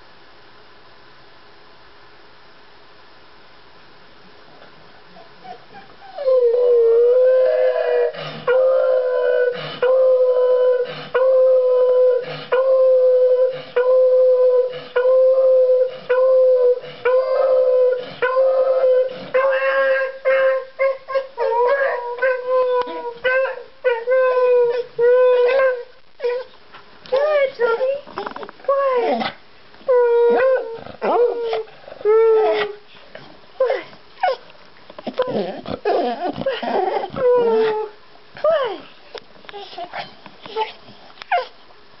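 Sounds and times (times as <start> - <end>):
dog howling: 5.4 - 26.5, 29.9 - 32.8, 35.1 - 38.8.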